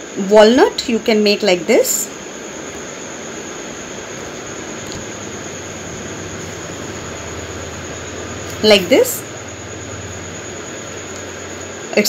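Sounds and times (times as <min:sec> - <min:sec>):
even hiss: 0:00.0 - 0:12.0
faint high whine: 0:00.0 - 0:12.0
low hum: 0:02.8 - 0:12.0.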